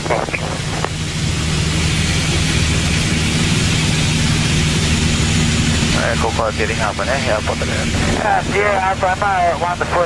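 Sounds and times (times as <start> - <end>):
aircraft engine droning: 0.0 - 10.0.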